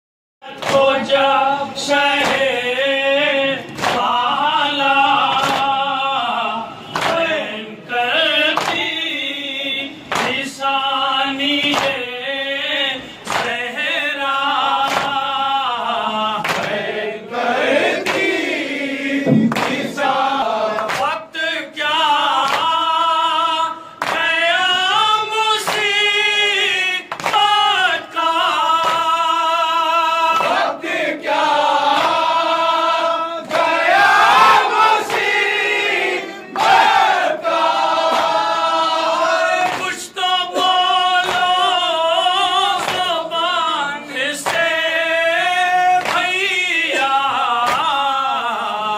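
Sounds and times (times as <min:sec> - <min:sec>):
men chanting a lament: 0:00.4 - 0:48.9
hands striking chests: 0:19.3 - 0:20.0.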